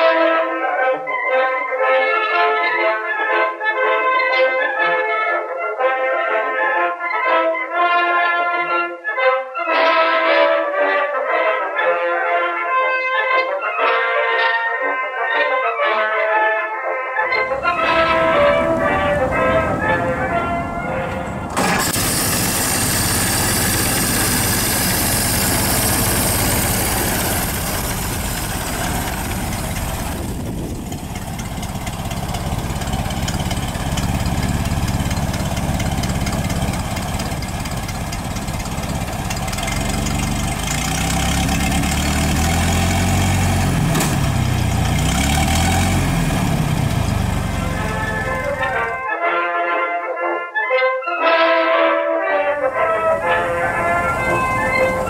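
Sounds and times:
car driving off: 17.3s - 49.0s, 52.4s - 55.0s
car engine idling: 17.3s - 49.0s, 52.5s - 55.0s.

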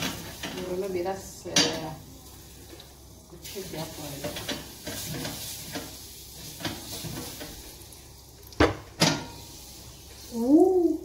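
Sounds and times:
metal utensil clanking on cookware: 0.0s - 2.0s, 4.0s - 7.6s
low kitchen clatter: 0.0s - 7.8s, 8.4s - 9.5s.

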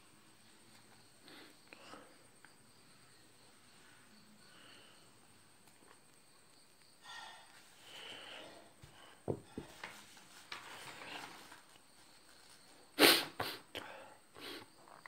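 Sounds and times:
paper rustling: 9.7s - 12.6s.

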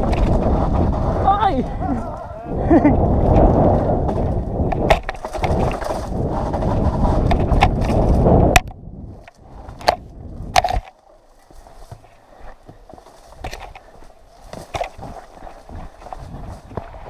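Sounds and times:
wind and tyres rushing on dirt: 0.0s - 17.0s
bike rattling clicks: 3.2s - 11.1s, 13.4s - 16.8s.

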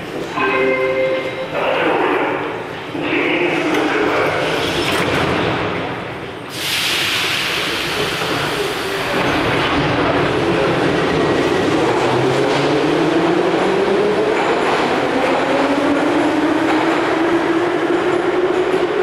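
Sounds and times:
train starting off and running: 0.0s - 19.0s
train door hiss: 6.5s - 9.2s.

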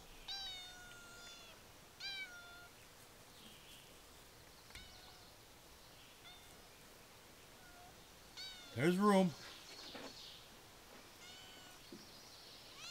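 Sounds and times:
cat meowing: 0.3s - 2.7s, 7.6s - 8.8s, 11.2s - 11.8s.

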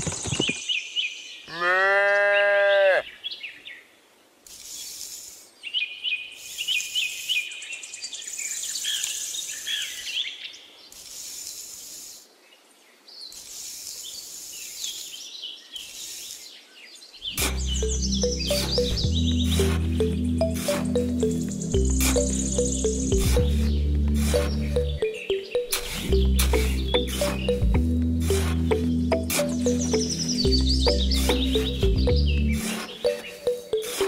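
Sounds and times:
birds chirping: 0.0s - 34.0s
short bursts of hiss: 4.4s - 5.6s, 10.9s - 12.4s, 13.2s - 16.6s
music: 17.4s - 34.0s.

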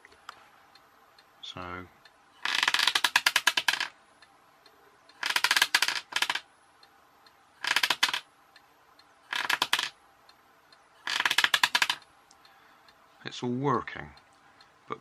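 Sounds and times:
vibrating motor rattling: 7.6s - 8.2s, 9.3s - 9.9s.

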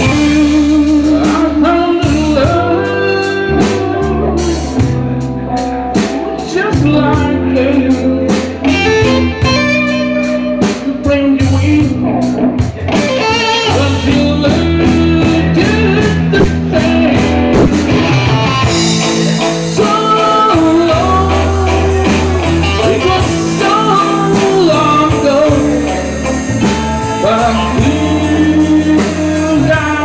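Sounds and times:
drums: 0.0s - 30.0s
electric guitar lead: 0.0s - 30.0s.

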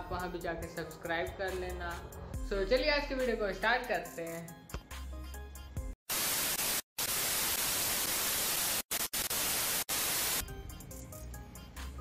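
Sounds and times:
television static hiss: 6.1s - 10.4s.

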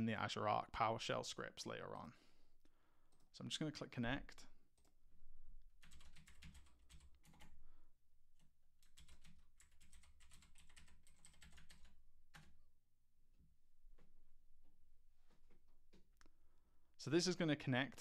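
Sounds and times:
computer keyboard typing: 5.8s - 7.6s, 8.4s - 12.6s.

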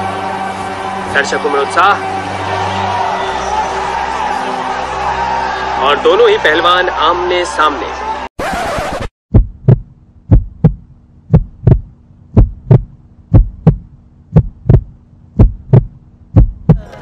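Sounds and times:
heartbeat thumps: 9.3s - 17.0s.

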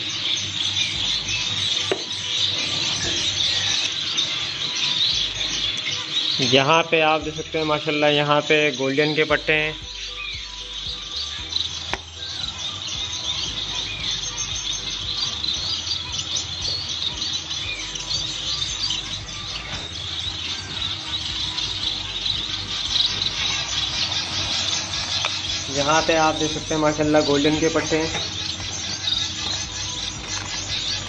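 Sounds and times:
finches chirping: 0.0s - 31.0s
steady low hum: 9.3s - 31.0s.

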